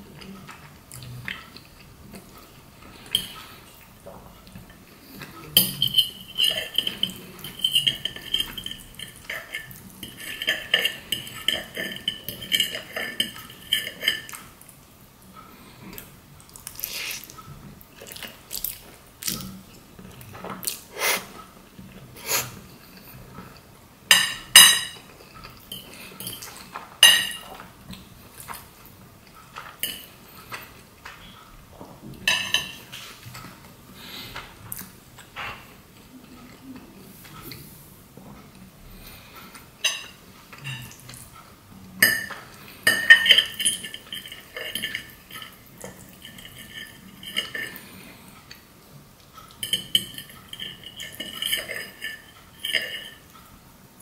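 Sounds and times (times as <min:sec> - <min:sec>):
fork scraping on ceramic plate: 0:05.6 - 0:14.4
wet eating sounds: 0:06.5 - 0:23.7.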